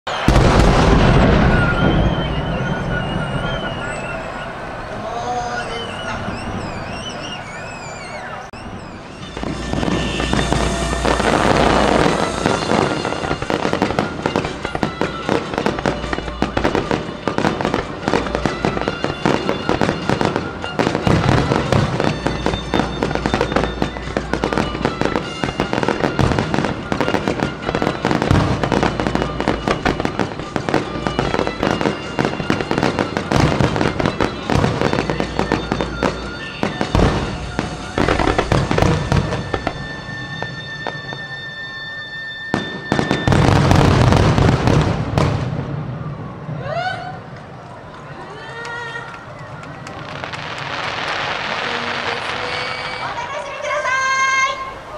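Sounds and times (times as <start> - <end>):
deep firework booms: 0.1 - 4.9, 8.6 - 41.2, 42.5 - 46.6
fireworks crackling: 0.1 - 54.9.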